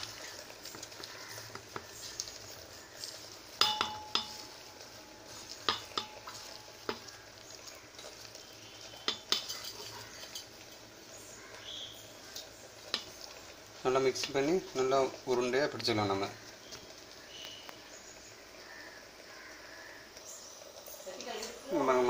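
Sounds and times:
hand mixing soft dough: 0.0 - 17.6
clinks against metal pot: 3.5 - 7.1, 9.0 - 10.6
pot ringing: 3.5 - 7.2, 8.9 - 10.6.

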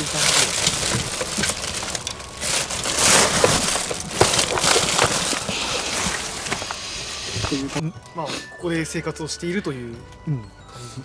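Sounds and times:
rubbish crunching underfoot: 0.0 - 7.8.

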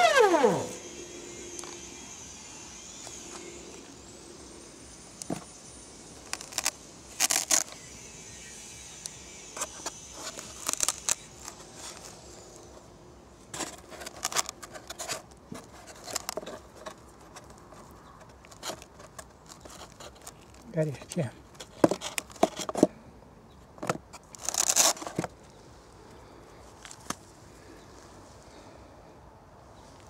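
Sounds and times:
hand handling battery and wiring: 0.0 - 0.8, 6.2 - 7.8, 9.0 - 12.9, 13.5 - 23.0, 23.6 - 25.6
faint high whine: 0.0 - 18.0.

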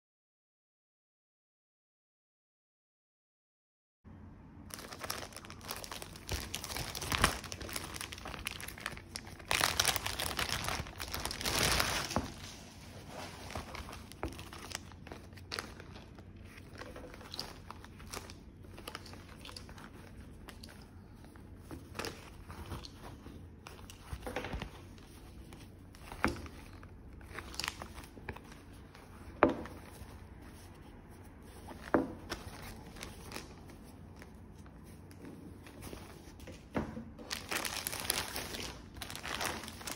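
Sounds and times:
plastic bag crinkling: 4.7 - 30.6, 31.6 - 34.7, 37.2 - 39.9.

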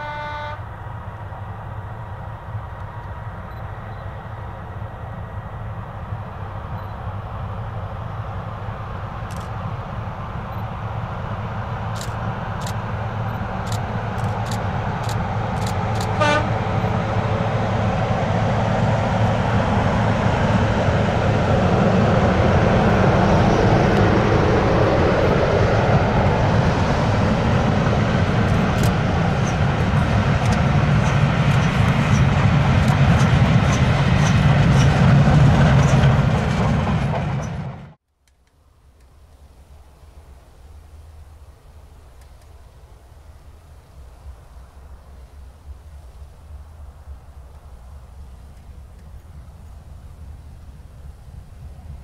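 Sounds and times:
train horn toot: 0.0 - 0.7, 16.0 - 16.7
train rumbling past: 0.0 - 38.0, 39.4 - 52.0.

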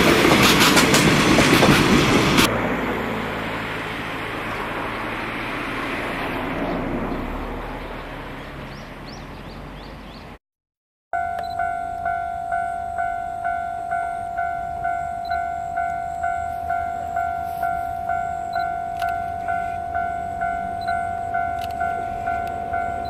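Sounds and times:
level crossing bell ringing: 11.2 - 23.0.

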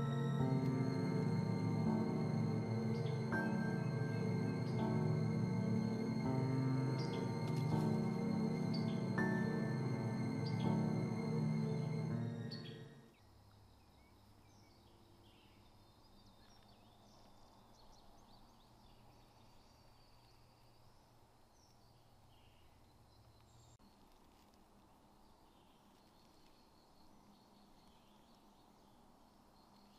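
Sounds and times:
low steady hum: 0.0 - 13.1
music: 0.0 - 13.1.

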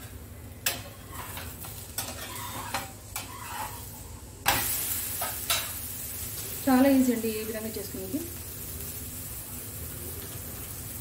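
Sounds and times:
loud sizzle in a pan: 0.0 - 11.0
metal spatula scraping a pan: 0.7 - 5.7.

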